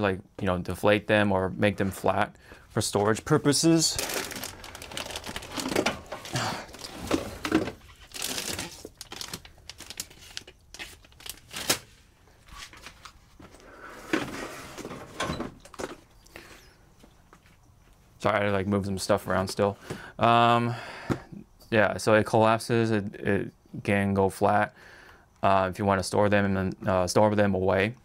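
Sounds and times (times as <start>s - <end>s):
plastic crinkling and rustling: 3.0s - 15.1s.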